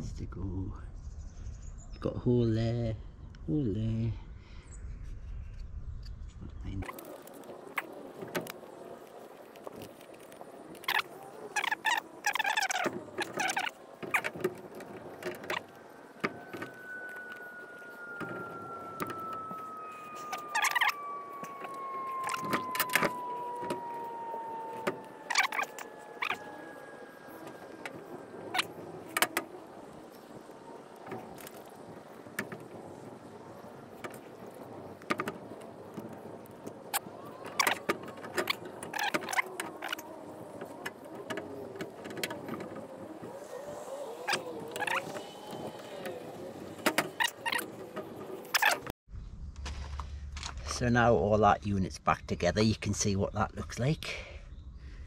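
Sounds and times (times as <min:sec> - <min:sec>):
faint whistle-like tone: 0:15.5 - 0:28.6, 0:43.4 - 0:47.6.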